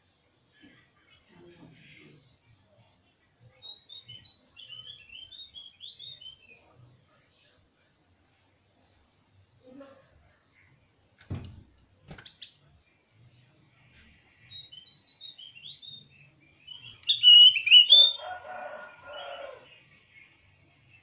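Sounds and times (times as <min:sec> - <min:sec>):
bird chirping: 0:00.0 - 0:06.9, 0:12.0 - 0:21.0.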